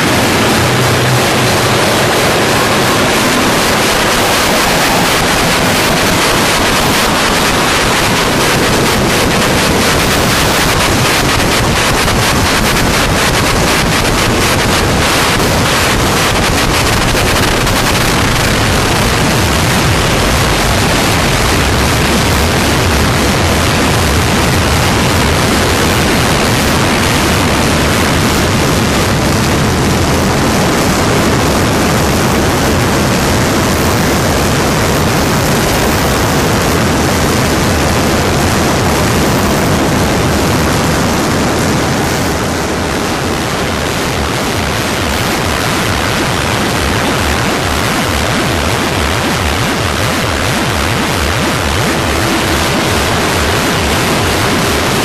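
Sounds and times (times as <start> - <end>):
harsh noise music: 0.0 - 30.5.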